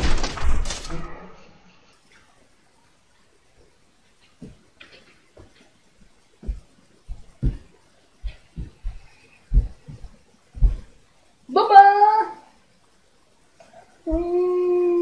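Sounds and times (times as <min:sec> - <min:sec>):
dull thumps and knocks: 0:06.4 - 0:11.0.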